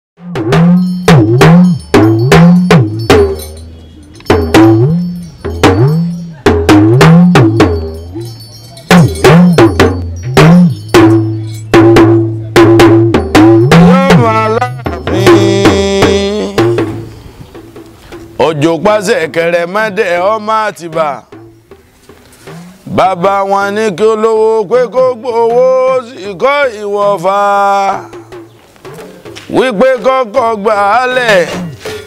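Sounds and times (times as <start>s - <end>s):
talking drum strokes: 0.4s - 18.5s, 20.8s - 23.0s.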